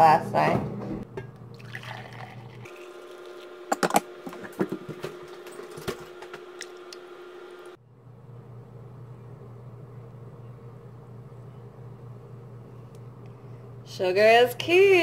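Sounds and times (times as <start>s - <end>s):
steady faint hum: 6.2s - 15.0s.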